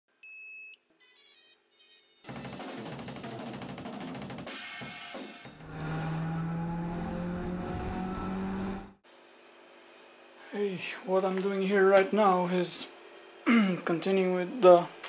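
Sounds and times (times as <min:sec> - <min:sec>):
drum-kit beat with cymbals: 0:02.3 - 0:05.6.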